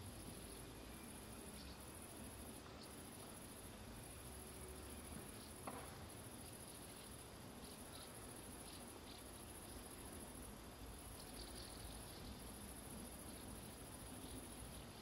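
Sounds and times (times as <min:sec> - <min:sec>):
night insects trilling: 0:00.0 - 0:15.0.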